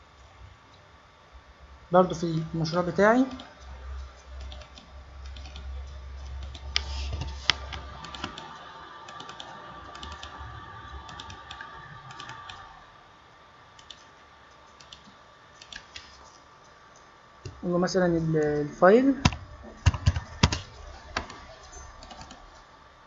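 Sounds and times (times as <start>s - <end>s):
faint steady hum: 0.0s - 23.0s
computer mouse and keyboard clicks: 3.3s - 10.4s, 11.0s - 12.6s, 13.8s - 17.6s, 19.2s - 22.7s.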